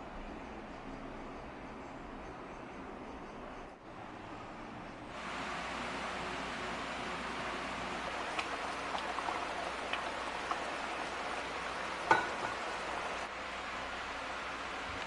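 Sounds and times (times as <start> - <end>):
sauce simmering and popping: 6.7 - 13.3.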